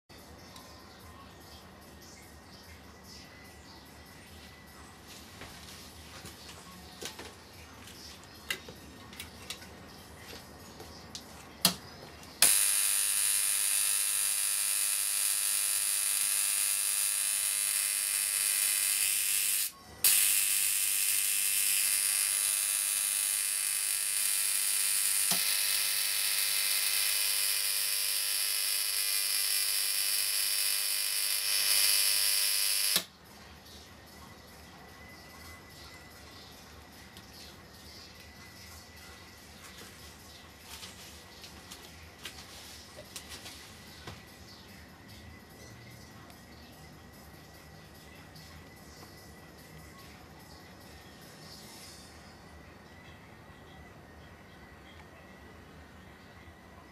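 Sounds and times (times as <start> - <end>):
electric arc buzzing hiss: 12.4 - 33.1.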